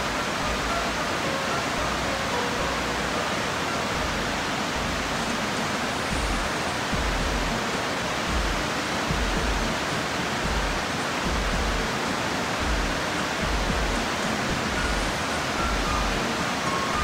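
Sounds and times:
low water rumble: 0.0s - 17.0s
waterfall rushing: 0.0s - 17.0s.

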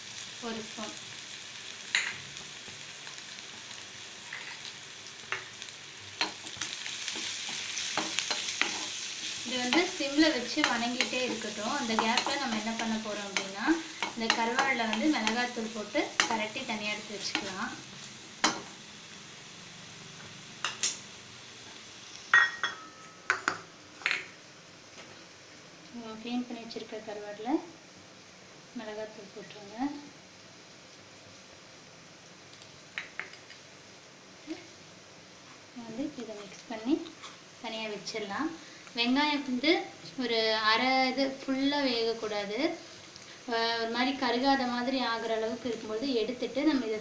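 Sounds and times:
onions sizzling in hot oil: 0.0s - 47.0s
spoon stirring in pan: 6.2s - 17.6s
bowl clinking and knocking: 22.4s - 24.3s.

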